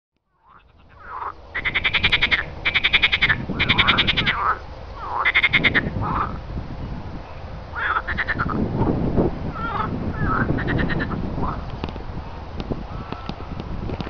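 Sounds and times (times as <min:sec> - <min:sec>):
frogs calling in pulses: 0:00.3 - 0:06.4, 0:07.7 - 0:08.6, 0:09.5 - 0:11.7
low frog croaks: 0:00.3 - 0:06.4, 0:07.8 - 0:08.6, 0:09.5 - 0:11.7.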